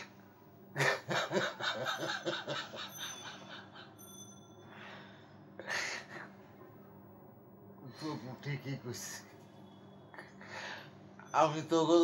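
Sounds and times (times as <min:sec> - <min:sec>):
long breath: 0:04.6 - 0:06.4.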